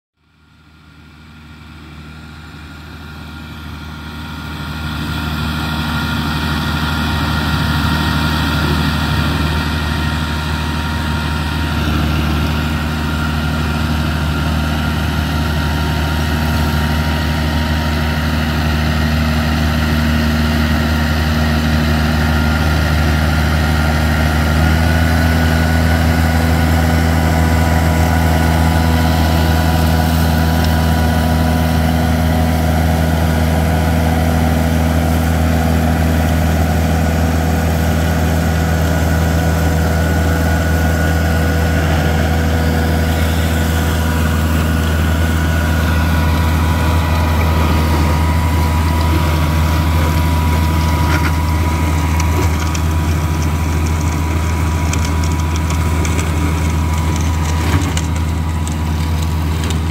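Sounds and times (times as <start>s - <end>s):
tractor engine running under load: 0.2s - 59.9s
flail mulcher spinning: 24.9s - 59.9s.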